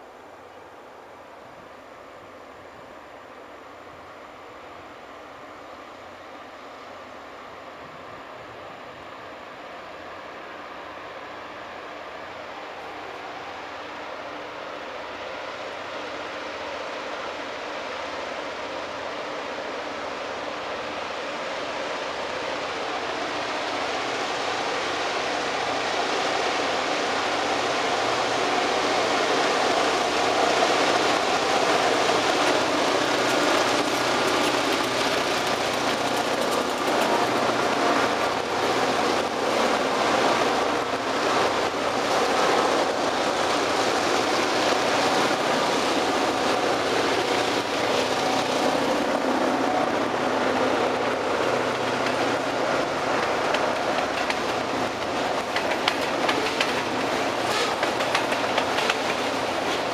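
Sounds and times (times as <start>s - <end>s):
diesel locomotives working hard: 0.0s - 59.9s
freight car wheels rolling: 29.6s - 59.9s.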